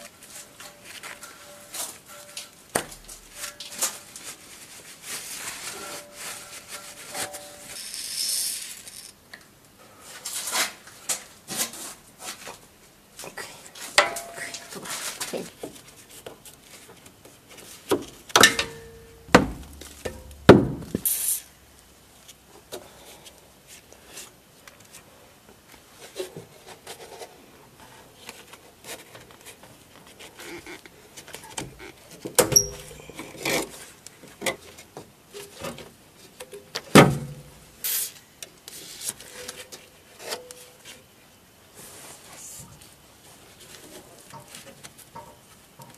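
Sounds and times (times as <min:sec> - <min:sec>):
rubbing and handling noise: 0:00.0 - 0:09.2
knocks and thuds on exhaust pipe: 0:18.0 - 0:21.1.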